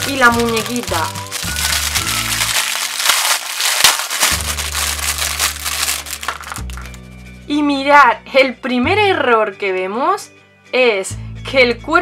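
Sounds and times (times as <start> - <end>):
plastic bag crinkling: 0.0 - 7.0
background music: 0.0 - 12.0.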